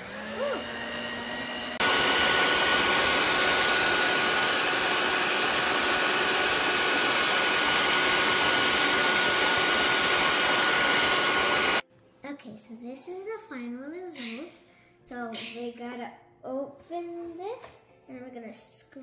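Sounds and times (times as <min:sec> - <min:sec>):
stand mixer whirring: 0:00.0 - 0:11.8.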